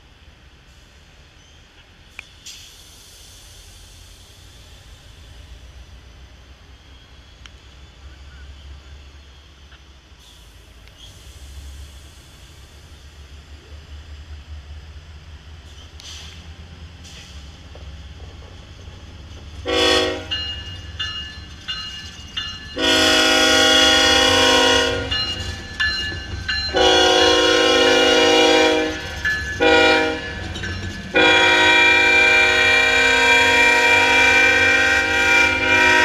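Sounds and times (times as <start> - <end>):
low rumble of diesel engines and wheels: 0.0 - 36.0
locomotive air horn: 19.6 - 20.4, 22.8 - 25.1, 26.7 - 29.0, 29.6 - 30.3, 31.1 - 36.0.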